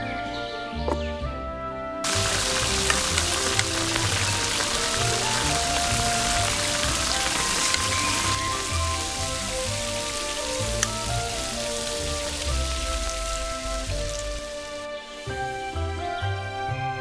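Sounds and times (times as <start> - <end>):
soft background music: 0.0 - 17.0
food sizzling in a pot: 2.1 - 15.3.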